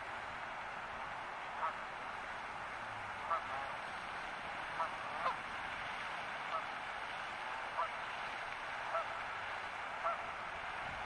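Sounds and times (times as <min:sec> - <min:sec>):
steady background hiss: 0:00.0 - 0:11.0
geese honking: 0:03.2 - 0:03.7, 0:04.8 - 0:05.4, 0:06.5 - 0:06.7, 0:08.9 - 0:09.2, 0:10.0 - 0:10.3.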